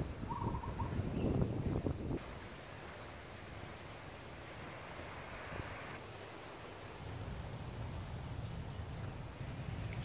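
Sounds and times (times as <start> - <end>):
wind rumbling on microphone: 0.0 - 10.0
small waves washing on sand: 2.2 - 8.4.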